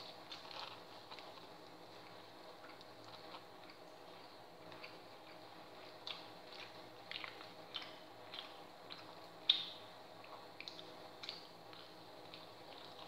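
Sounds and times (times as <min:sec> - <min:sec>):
chewing clicks and smacks: 0:00.0 - 0:13.0
faint steady hum: 0:00.0 - 0:13.0.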